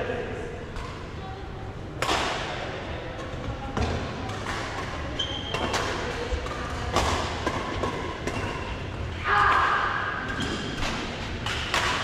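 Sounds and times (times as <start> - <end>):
rackets hitting shuttlecock: 3.2 - 8.6, 10.2 - 12.0.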